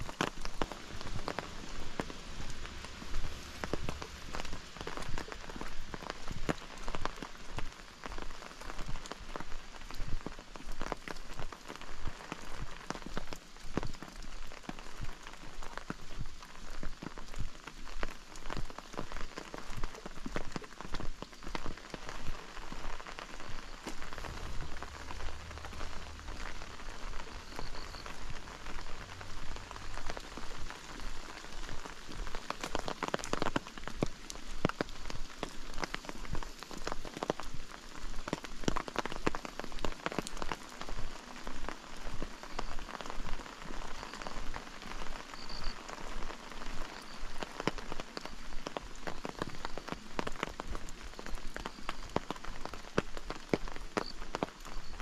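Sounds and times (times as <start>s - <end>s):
rain falling: 0.0s - 55.0s
raindrops hitting near microphone: 0.0s - 55.0s.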